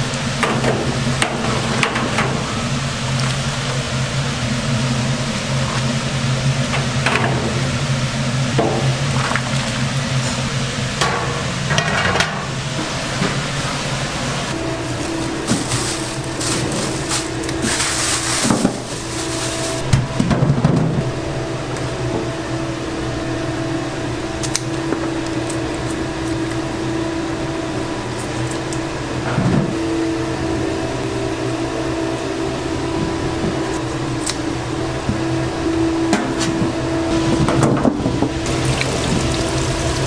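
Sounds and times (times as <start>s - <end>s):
machine hum: 0.0s - 40.0s
kitchen clatter and knocks: 11.1s - 12.4s.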